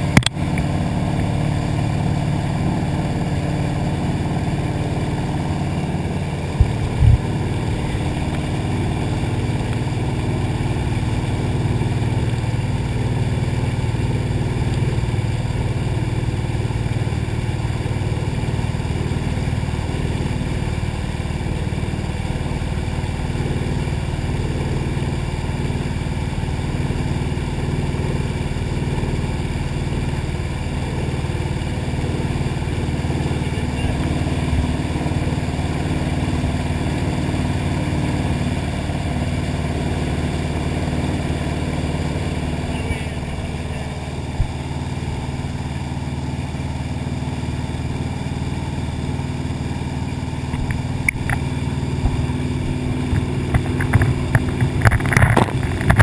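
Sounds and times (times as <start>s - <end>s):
water rushing and splashing: 0.0s - 18.8s
boat engine running: 0.0s - 56.0s.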